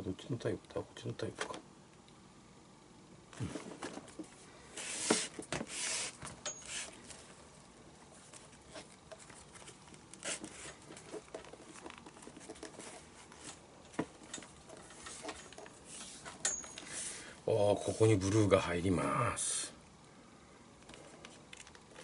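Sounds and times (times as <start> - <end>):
handling clicks and rustles: 8.2 - 16.9.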